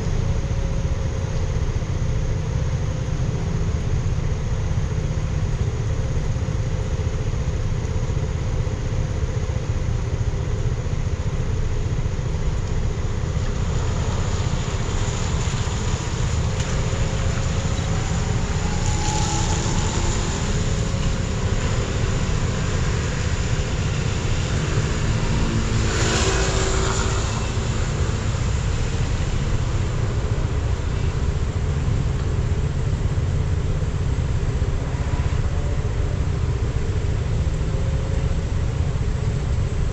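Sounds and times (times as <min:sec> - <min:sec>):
car road rumble: 0:00.0 - 0:39.9
tyre hiss on wet road: 0:13.2 - 0:32.7.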